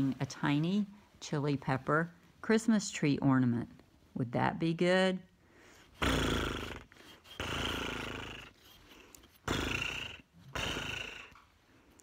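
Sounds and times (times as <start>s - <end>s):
horse snorting: 6.0s - 11.4s.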